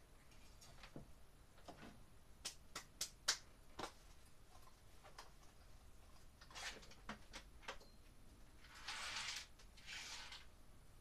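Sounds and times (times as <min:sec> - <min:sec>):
rustling or scraping: 0:08.6 - 0:10.5.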